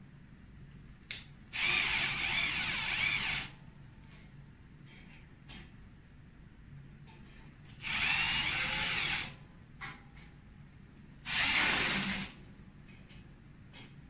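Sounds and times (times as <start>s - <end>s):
cordless drill against metal frame: 1.6s - 3.6s, 7.8s - 9.4s, 11.3s - 12.4s.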